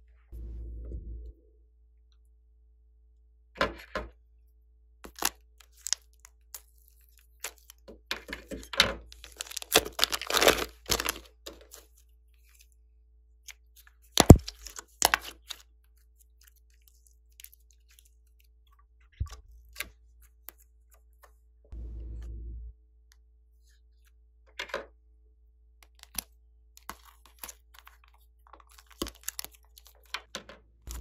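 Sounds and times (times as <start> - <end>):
plastic bag crinkling: 5.1 - 6.1, 9.2 - 11.9, 27.0 - 30.1.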